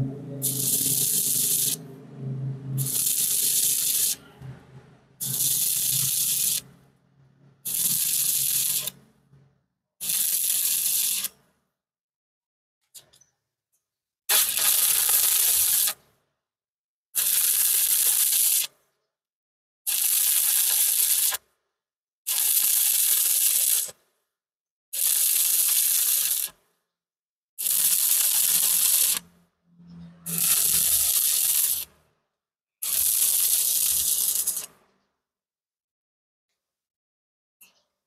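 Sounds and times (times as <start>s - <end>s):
welding arc crackling: 0.4s - 1.8s, 2.8s - 4.2s, 5.2s - 6.7s, 7.6s - 9.0s, 10.0s - 11.3s, 14.3s - 16.0s, 19.9s - 21.4s, 25.0s - 26.5s, 27.6s - 29.3s, 30.3s - 31.9s, 32.8s - 34.8s.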